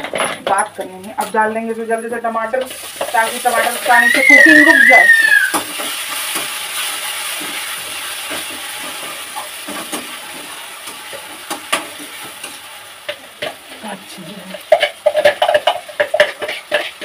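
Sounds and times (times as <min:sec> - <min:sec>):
vegetables sizzling in hot oil: 0:00.0 - 0:17.0
steel spatula scraping a pan: 0:14.6 - 0:17.0.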